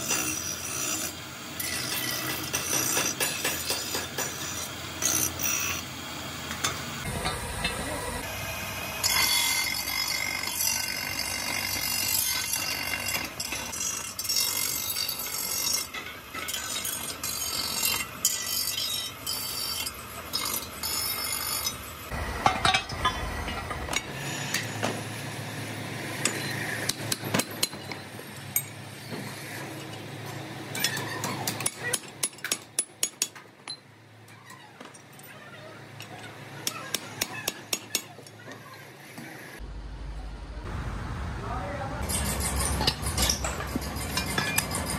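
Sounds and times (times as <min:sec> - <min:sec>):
metal parts clattering onto pile: 0:22.4 - 0:24.1, 0:42.1 - 0:44.9.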